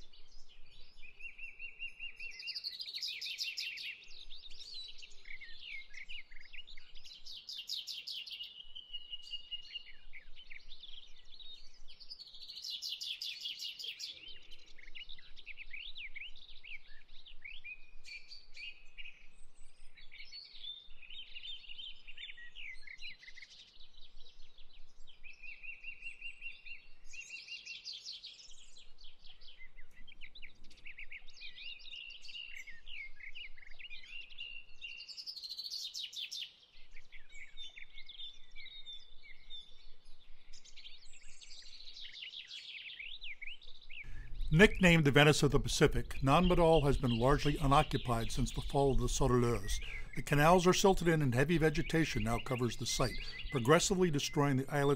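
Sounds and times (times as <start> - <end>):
chorus of birds singing: 0.0 - 54.9.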